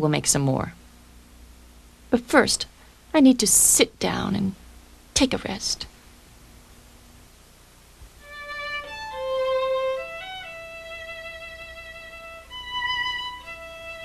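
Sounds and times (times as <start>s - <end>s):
slow instrumental melody: 8.2s - 14.0s.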